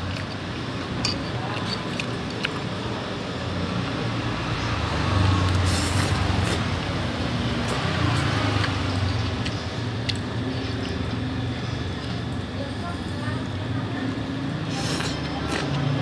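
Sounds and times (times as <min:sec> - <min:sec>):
passing road traffic: 0:00.0 - 0:12.4.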